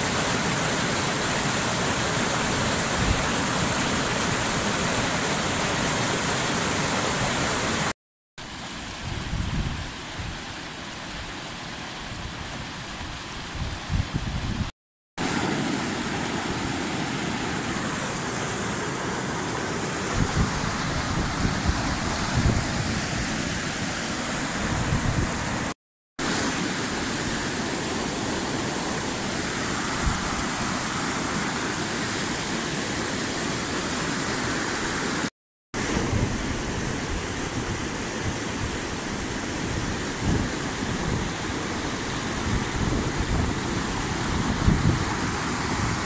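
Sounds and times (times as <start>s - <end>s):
river water rushing over rocks: 0.0s - 13.6s, 15.2s - 46.0s
wind on microphone: 9.0s - 10.4s, 13.4s - 14.7s, 20.1s - 23.6s, 24.4s - 25.7s, 35.8s - 46.0s.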